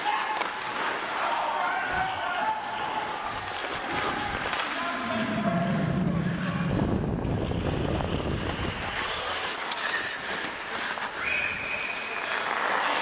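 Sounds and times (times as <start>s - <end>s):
ice skate blades scraping: 0.0s - 5.4s, 7.5s - 13.0s
wind on microphone: 5.4s - 9.0s.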